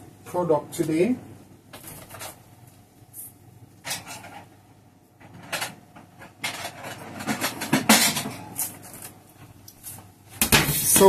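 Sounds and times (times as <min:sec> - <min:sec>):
plates clattering and scraping: 0:03.8 - 0:04.5, 0:05.2 - 0:09.1.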